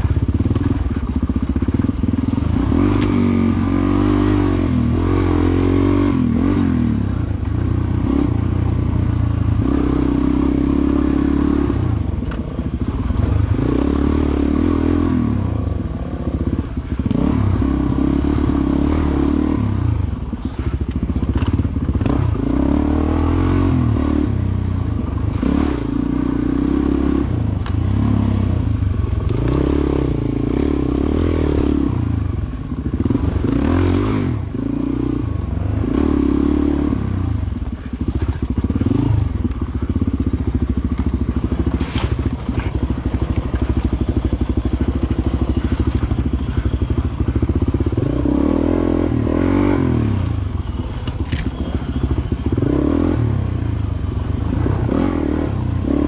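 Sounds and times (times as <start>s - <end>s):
dirt bike engine revving: 1.6s - 7.1s, 32.8s - 40.0s, 54.3s - 56.0s.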